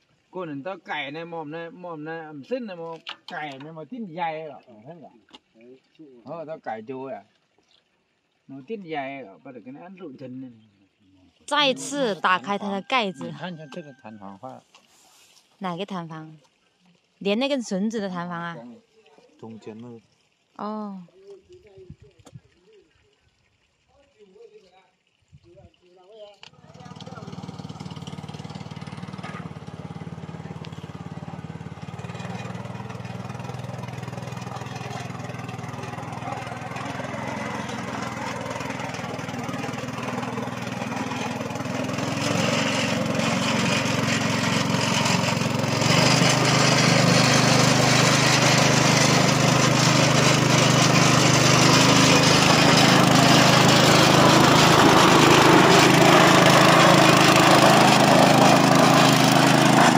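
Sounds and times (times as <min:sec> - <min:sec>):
small petrol engine running: 0:11.5 - 0:13.4, 0:26.5 - 0:59.9.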